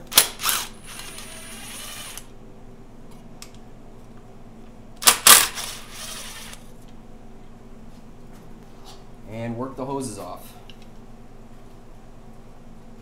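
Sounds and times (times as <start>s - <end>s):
impact driver bursts: 0.0s - 2.3s, 5.0s - 6.6s.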